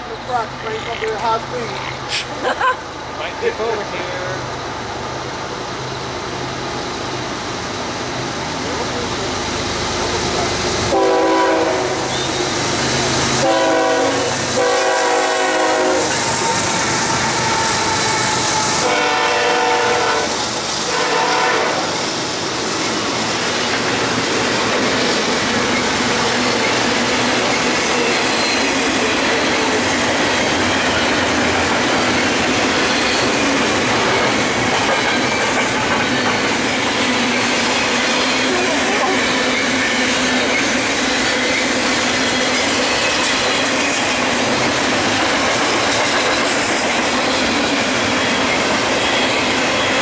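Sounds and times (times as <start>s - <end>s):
freight train rumble and clatter: 0.0s - 50.0s
locomotive air horn blasts: 10.9s - 12.4s, 13.4s - 16.6s, 18.8s - 22.0s.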